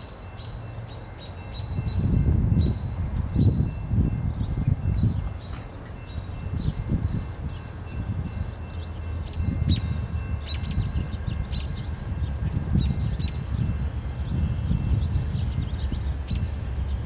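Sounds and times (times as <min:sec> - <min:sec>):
wind rumble on microphone: 0:01.5 - 0:17.0
small birds chirping: 0:04.2 - 0:17.0.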